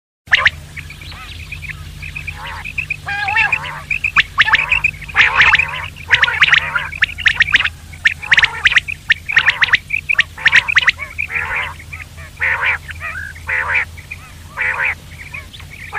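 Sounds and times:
quail calling in rasping bursts: 0.3 - 15.9
steady low hum: 0.3 - 15.9.

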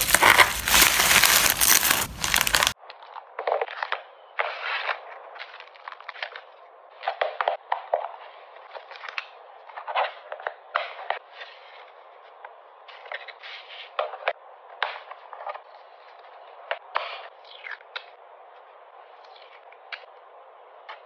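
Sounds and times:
card sleeves crinkling: 0.0 - 2.8.

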